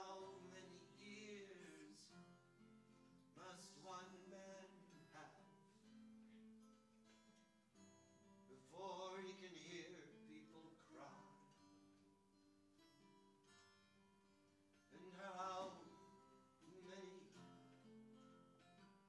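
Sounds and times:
man singing: 0.0s - 2.3s, 3.3s - 5.6s, 8.5s - 11.4s, 14.9s - 17.6s
acoustic guitar strummed: 0.0s - 19.0s.

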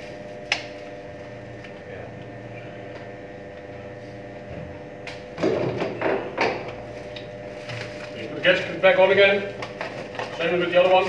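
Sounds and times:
machinery hum: 0.0s - 11.0s.

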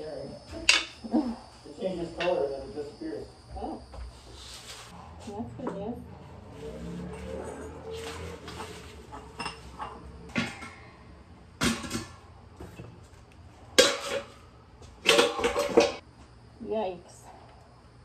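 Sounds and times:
metal bowls and pans clattering: 6.4s - 11.0s, 11.6s - 12.9s, 13.7s - 16.0s.

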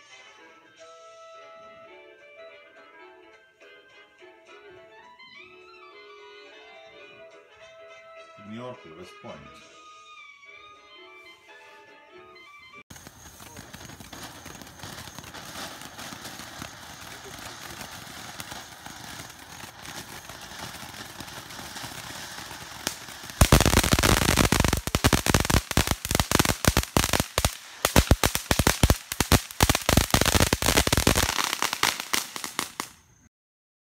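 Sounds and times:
fountain fireworks hissing: 12.9s - 33.1s
sharp cracks and pops: 19.1s - 32.9s.

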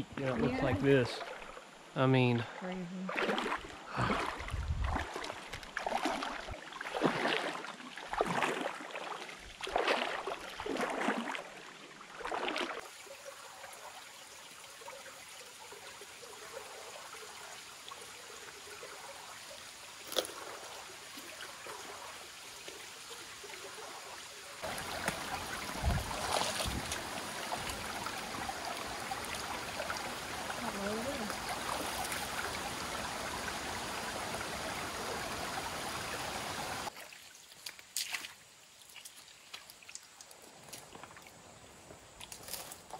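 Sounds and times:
water trickling over rocks: 0.5s - 42.9s
feet splashing through creek: 2.4s - 13.0s, 20.0s - 42.9s.

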